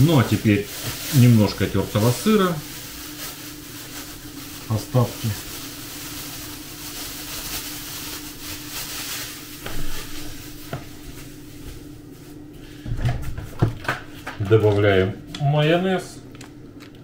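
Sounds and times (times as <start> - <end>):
plastic bag rustling: 0.0 - 13.4
steady low hum: 0.0 - 17.0.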